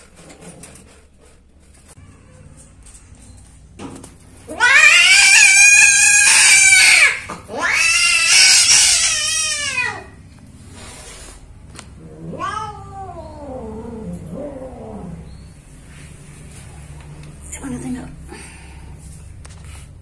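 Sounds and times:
cat yowling: 0:04.5 - 0:10.2, 0:12.0 - 0:15.2.

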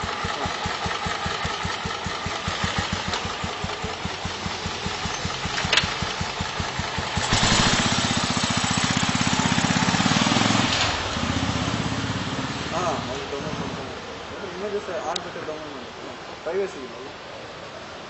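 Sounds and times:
motorcycle engine idling: 0:00.0 - 0:12.3
motorcycle engine revving: 0:00.0 - 0:13.8.

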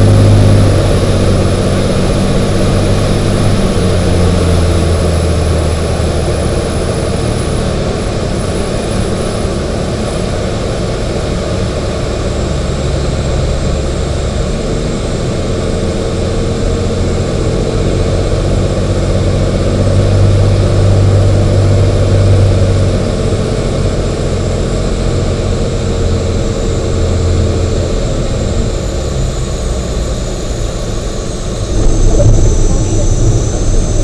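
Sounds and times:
aircraft engine and propeller droning: 0:00.0 - 0:34.0
wind noise: 0:31.6 - 0:34.0.

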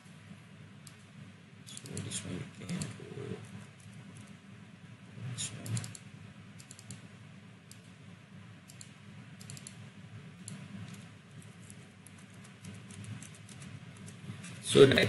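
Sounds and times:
low steady hum: 0:00.0 - 0:15.0
keyboard keys clicking: 0:10.4 - 0:14.2.

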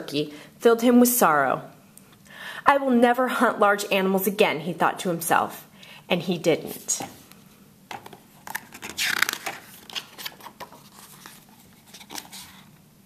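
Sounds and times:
book page turning: 0:07.9 - 0:12.8.

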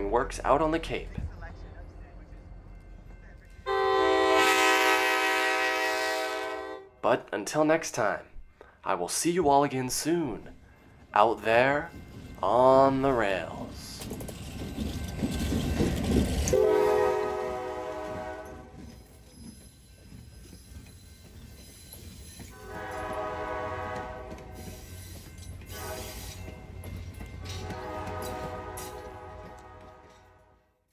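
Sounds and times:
passenger train rumbling past: 0:00.0 - 0:30.6
locomotive air horn blasts: 0:03.7 - 0:06.9, 0:16.5 - 0:18.7, 0:22.6 - 0:24.7, 0:25.7 - 0:26.4, 0:27.6 - 0:30.7.

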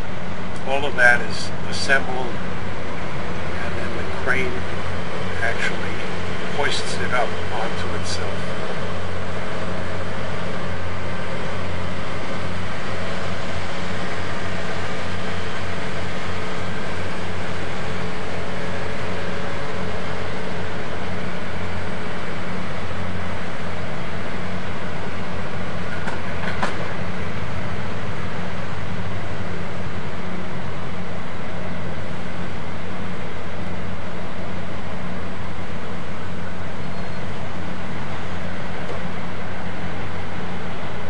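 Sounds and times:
diesel engine droning: 0:00.0 - 0:41.0.

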